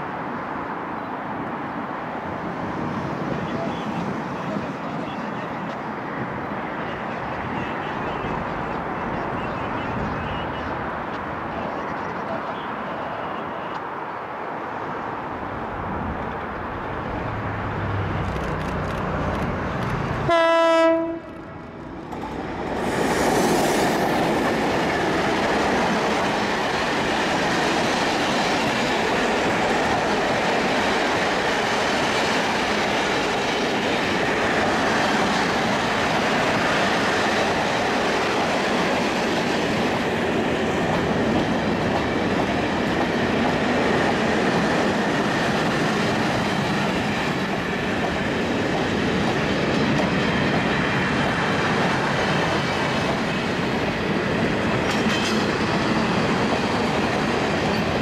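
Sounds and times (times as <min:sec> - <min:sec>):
train wheels on rails: 0:01.4 - 0:58.0
locomotive horn blast: 0:20.2 - 0:21.6.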